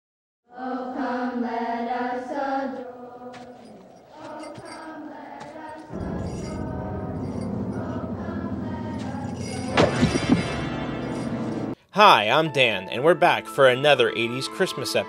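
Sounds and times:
choir singing long notes: 0.5 - 11.8
soft music: 5.9 - 15.0
full music with deep notes: 6.0 - 11.8.

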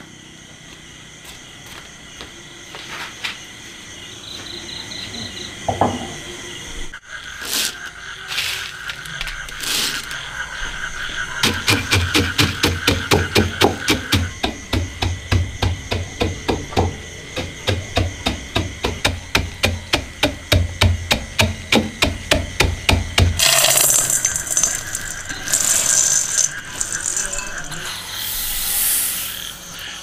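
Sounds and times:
pestle pounding in stone mortar: 11.4 - 27.3
nuts pouring into metal bowl: 23.4 - 27.8.

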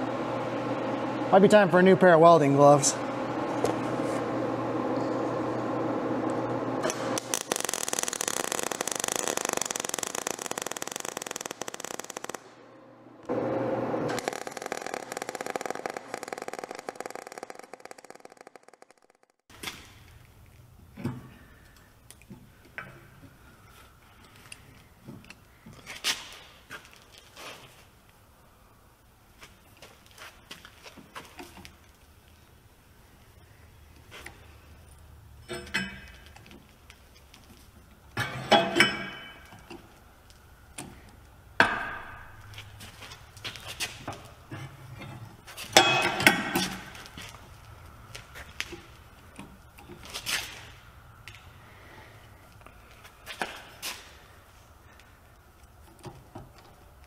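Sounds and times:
low hum: 2.9 - 19.4
machine running: 2.9 - 19.4.

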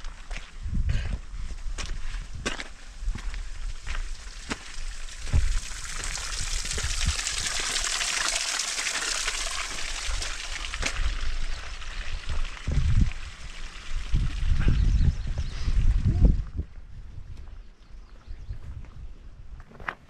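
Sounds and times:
footsteps crunching on dirt: 0.0 - 5.6
water trickling onto rocks: 2.7 - 14.6.

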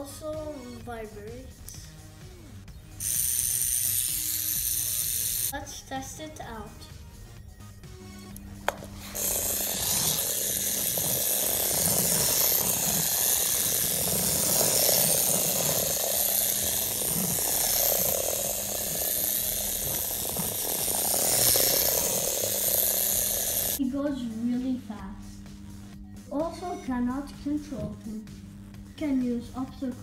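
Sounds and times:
toy vibration motor buzzing: 2.8 - 5.6, 8.6 - 23.8.

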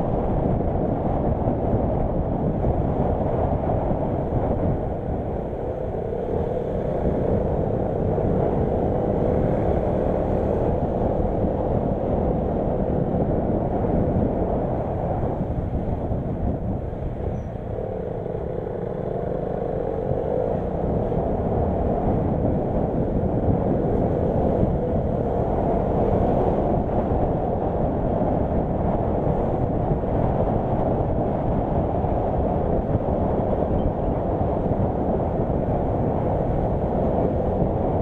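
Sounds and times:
faint whine bending in pitch: 3.1 - 28.1, 32.6 - 35.2.

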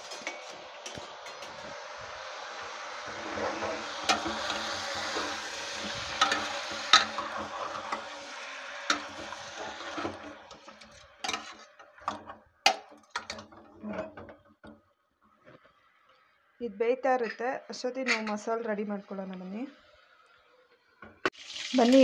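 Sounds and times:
chicken sizzling in oil: 0.0 - 14.2, 19.7 - 22.0
metal ladle scraping a pot: 0.0 - 14.4.

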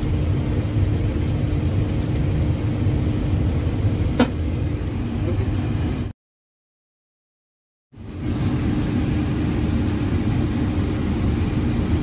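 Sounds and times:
faint steady hum: 8.0 - 12.0.

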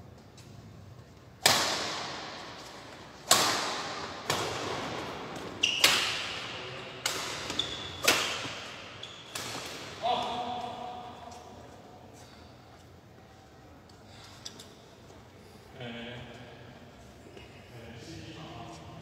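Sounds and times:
badminton racket hitting shuttlecock: 1.4 - 11.3.

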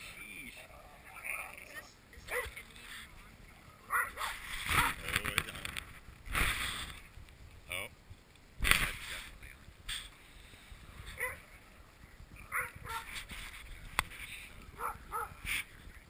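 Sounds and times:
dogs yelping: 3.9 - 5.1, 11.2 - 11.5, 12.4 - 13.1, 14.8 - 15.5.

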